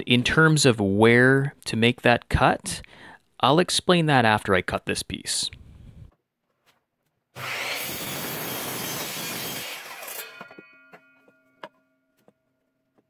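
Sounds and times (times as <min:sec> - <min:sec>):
miter saw cutting wood: 0:07.4 - 0:10.6.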